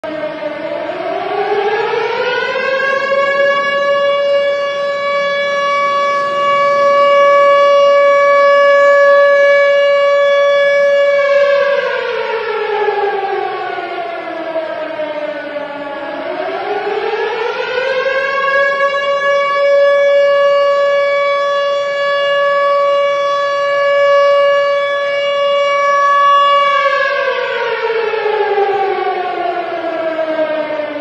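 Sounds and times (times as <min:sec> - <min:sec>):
siren wailing: 0:00.0 - 0:31.0.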